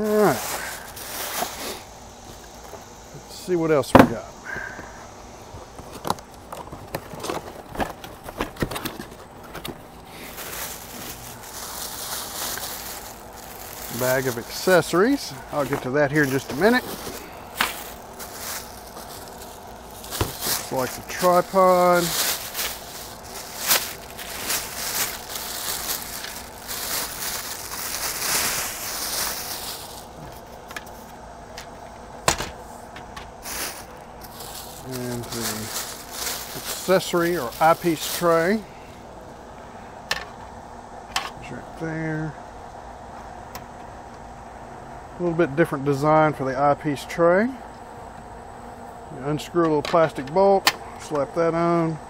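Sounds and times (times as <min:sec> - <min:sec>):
plastic bag crinkling: 0:00.0 - 0:01.9, 0:05.8 - 0:31.1, 0:33.4 - 0:38.7
cardboard knocks and scrapes: 0:20.2 - 0:20.5.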